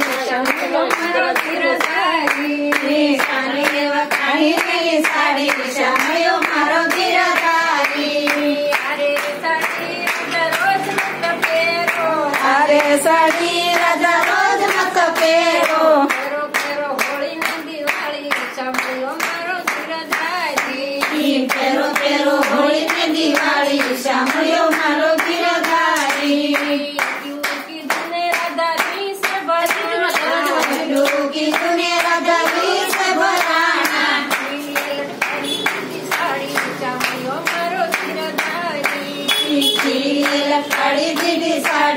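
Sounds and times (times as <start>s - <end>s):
hand claps: 0.0s - 41.9s
women singing devotional song: 0.0s - 41.9s.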